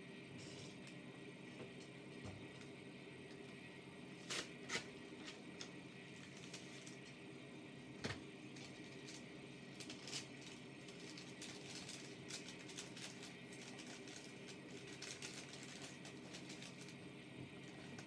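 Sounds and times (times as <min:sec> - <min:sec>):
train running with hum: 0:00.0 - 0:18.0.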